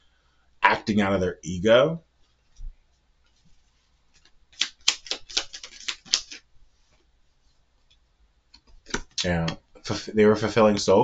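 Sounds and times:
cards being shuffled: 3.3 - 7.0.

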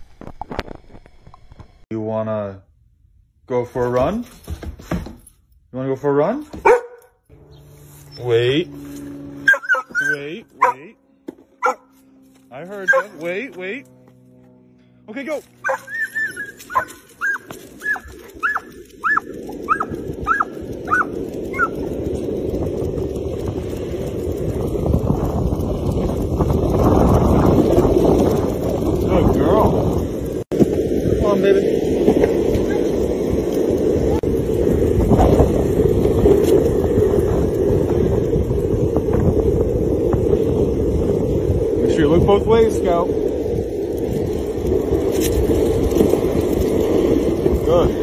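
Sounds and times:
dog yelping excitedly: 6.6 - 7.1, 9.4 - 10.8, 11.6 - 11.9, 12.8 - 13.2, 15.6 - 21.8
steady rushing noise: 7.3 - 48.0
wind buffeting microphone: 15.6 - 48.0.

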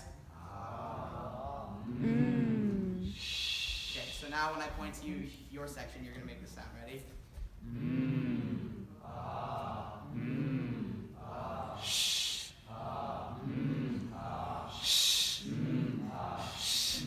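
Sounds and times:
man chanting: 0.0 - 3.2, 7.6 - 17.0.

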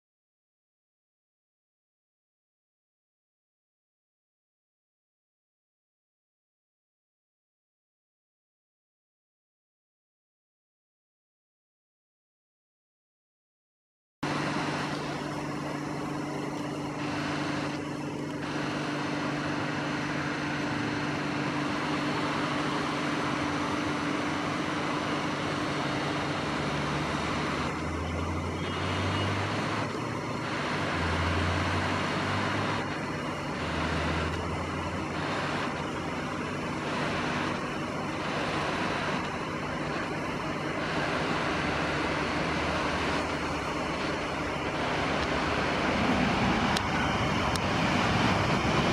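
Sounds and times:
background roar: 14.2 - 48.9
deep engine drone: 14.2 - 48.9
distant freight train rumble: 14.3 - 48.9.

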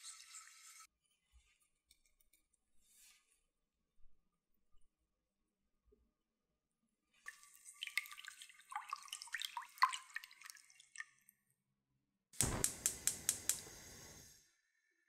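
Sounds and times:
gas igniter clicks: 12.4 - 14.2
gas burner rushing: 12.4 - 14.5.

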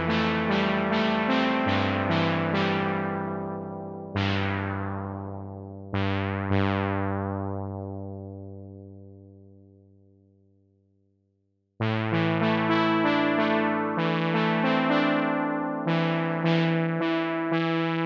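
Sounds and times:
synthesizer chords: 0.0 - 6.9, 11.8 - 18.0.

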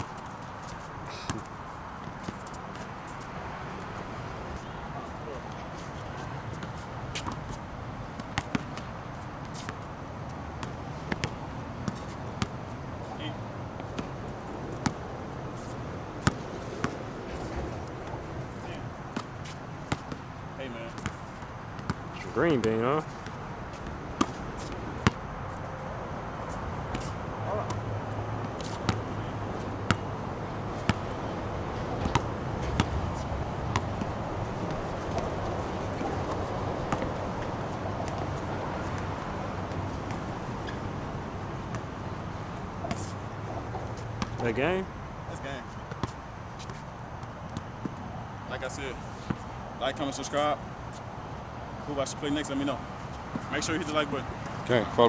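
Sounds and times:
outdoor background noise: 0.0 - 55.0
basketball bouncing on hard court: 32.0 - 33.0, 33.7 - 34.1, 46.0 - 46.8.

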